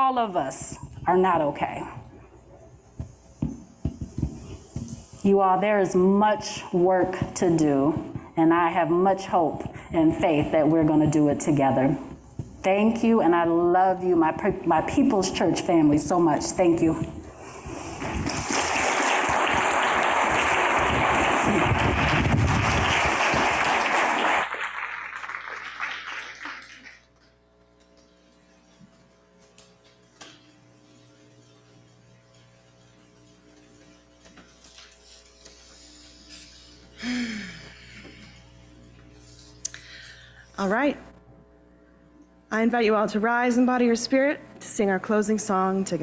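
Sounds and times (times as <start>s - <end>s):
faint steady hum: 0.0s - 46.0s
congregation applauding: 18.0s - 27.1s.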